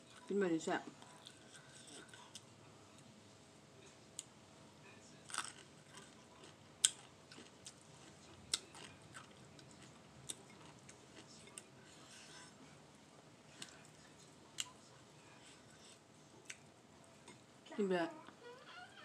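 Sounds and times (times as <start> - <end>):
person chewing and lip-smacking: 5.3 - 11.7, 16.4 - 16.6.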